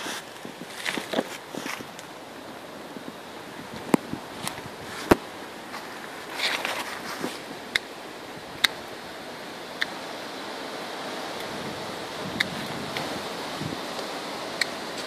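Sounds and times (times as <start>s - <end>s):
leaves rustling: 0.0s - 15.0s
wind noise: 0.0s - 15.0s
pruning snips clicking: 7.7s - 7.9s, 8.6s - 8.8s, 9.8s - 10.0s.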